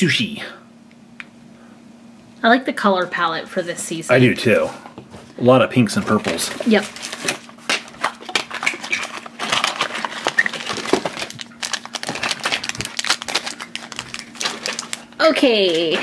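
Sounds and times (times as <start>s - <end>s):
plastic bag tearing: 6.4s - 16.0s.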